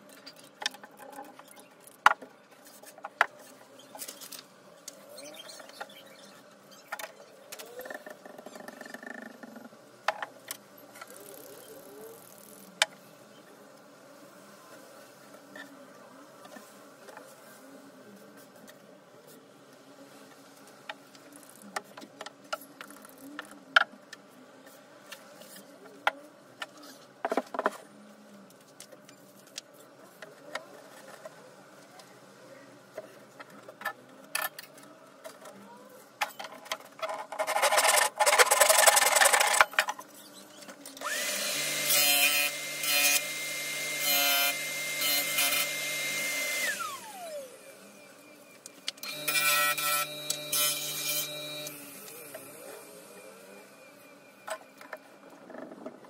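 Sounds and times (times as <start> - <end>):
power tool motor running: 49.0 - 53.6.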